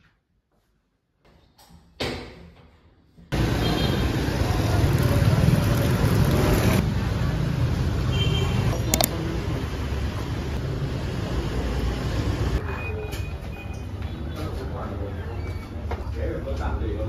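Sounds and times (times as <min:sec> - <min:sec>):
road traffic rumble: 0:03.3 - 0:16.0
sharp click: 0:08.8 - 0:09.1.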